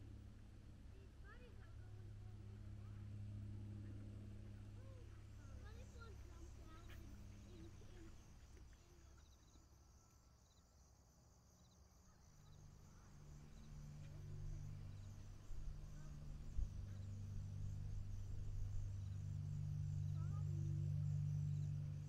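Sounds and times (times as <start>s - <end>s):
low steady hum: 0.0s - 10.1s, 11.6s - 22.0s.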